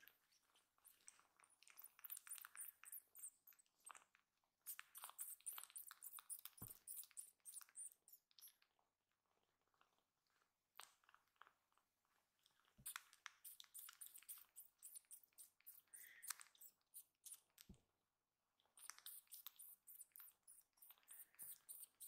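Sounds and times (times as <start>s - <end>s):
kitten suckling clicks: 0.8s - 4.0s, 4.6s - 8.4s, 12.8s - 17.7s, 18.8s - 22.0s.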